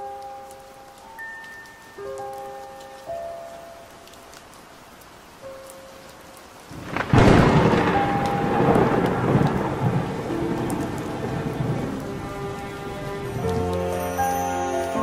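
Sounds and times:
steady rain: 0.0s - 15.0s
thunder clap and rumble: 6.7s - 13.6s.

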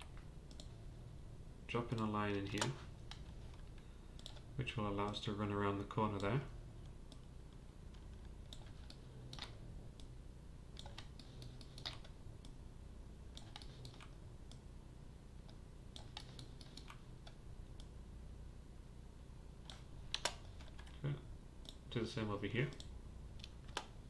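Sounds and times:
steady low hum: 0.0s - 24.0s
mouse and keyboard clicks: 1.9s - 5.2s, 8.0s - 10.1s, 10.8s - 12.6s, 13.4s - 14.6s, 15.4s - 17.4s, 19.6s - 21.0s.

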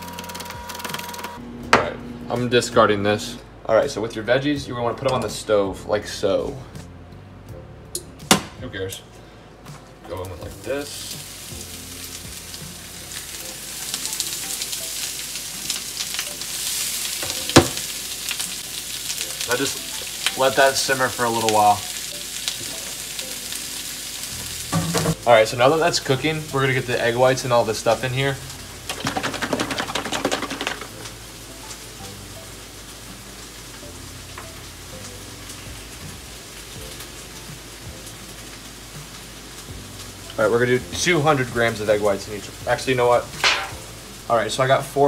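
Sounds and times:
vegetables sizzling in a frying pan: 10.1s - 45.0s
carton of liquid shaken: 28.9s - 30.9s
liquid pouring into foil pan: 28.9s - 31.0s.

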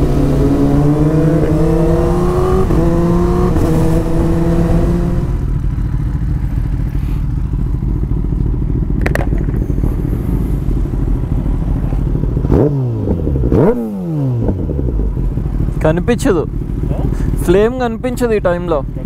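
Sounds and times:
motorcycle engine idling: 5.0s - 13.5s, 14.4s - 19.0s.

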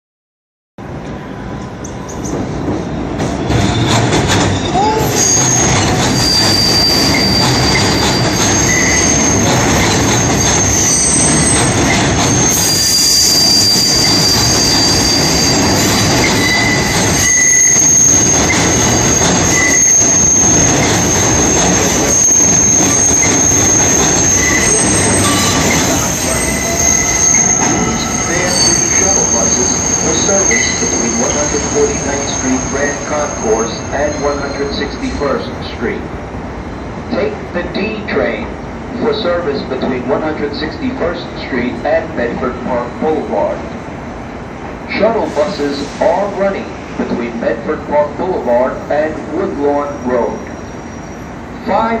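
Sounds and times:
train cars rumbling on rails: 0.8s - 52.0s
train wheels squealing: 3.3s - 35.5s, 49.8s - 51.4s.

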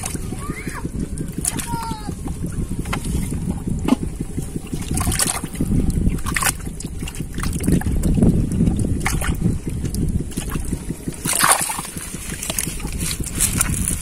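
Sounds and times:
steady low rumble: 0.0s - 14.0s
hand sloshing through muddy water: 2.8s - 14.0s
short splashes: 10.3s - 14.0s.

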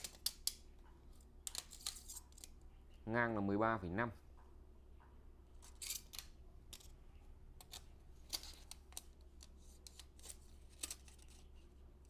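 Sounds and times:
clicks and rustles of handling: 0.0s - 2.6s, 7.6s - 12.0s
low steady hum: 0.0s - 12.0s.

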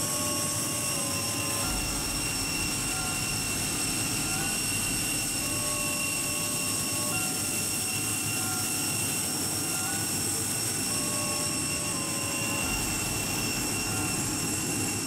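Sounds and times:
high steady tones: 0.0s - 15.0s
turbine whine and rush: 0.0s - 15.0s.

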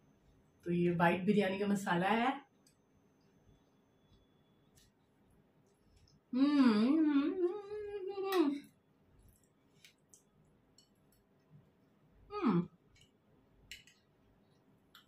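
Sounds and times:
woman humming mmm: 6.3s - 8.6s, 12.3s - 12.7s.

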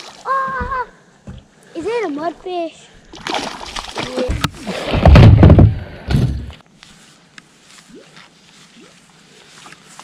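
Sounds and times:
heavy thuds and knocks: 4.3s - 6.5s.

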